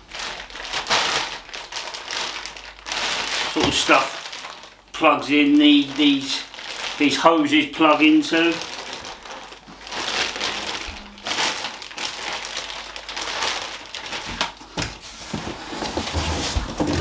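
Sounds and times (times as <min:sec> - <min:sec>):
plastic bag crinkling: 0:00.0 - 0:17.0
cardboard box rustling: 0:15.0 - 0:17.0.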